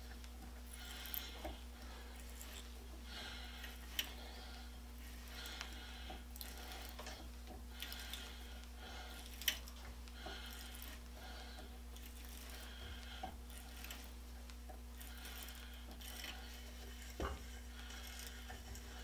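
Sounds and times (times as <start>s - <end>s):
die scraping on metal rod: 14.9s - 19.0s.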